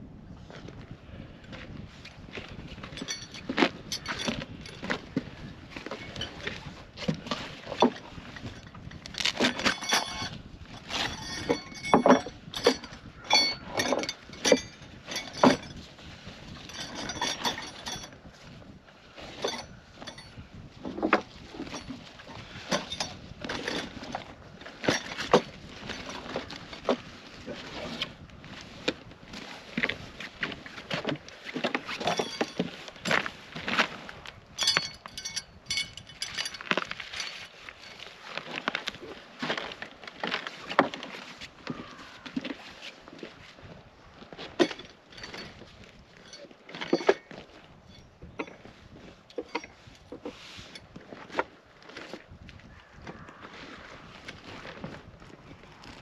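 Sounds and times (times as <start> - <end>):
small metallic clinks: 2.9 - 4.9, 7.8 - 15.8, 16.6 - 18.2, 19.4 - 20.4, 22.6 - 24.1, 31.9 - 33.3, 34.6 - 38.1, 44.6 - 48.7, 49.3 - 50.1
nylon bag rustling: 9.0 - 11.7, 21.6 - 41.7, 53.6 - 56.0.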